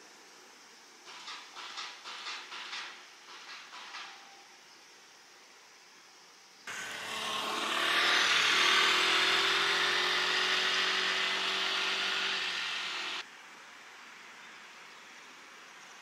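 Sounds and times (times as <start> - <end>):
road vehicle passing: 6.7 - 13.2.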